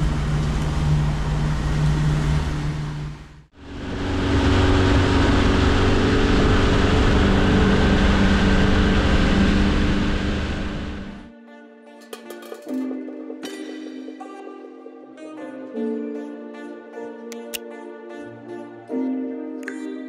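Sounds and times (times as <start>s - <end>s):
rushing water and wake: 0.0s - 11.2s
outboard motor droning: 0.0s - 11.3s.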